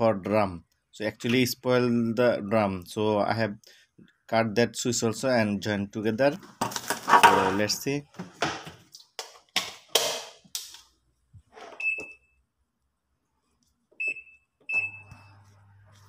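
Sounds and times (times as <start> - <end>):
washing machine beeps: 11.8 - 12.4, 14.0 - 15.6.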